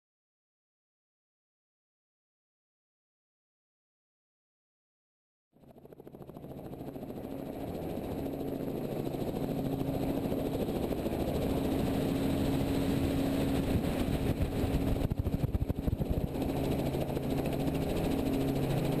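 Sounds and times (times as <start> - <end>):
helicopter engine and rotor: 5.6 - 19.0
low fluttering rumble: 9.3 - 19.0.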